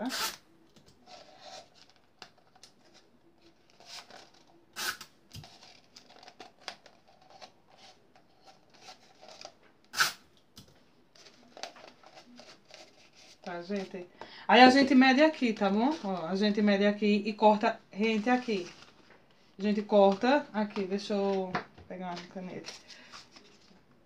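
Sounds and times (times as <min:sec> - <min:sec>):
tape crackling: 0:00.0 - 0:14.0
cardboard rustling: 0:11.1 - 0:14.0, 0:18.0 - 0:23.8.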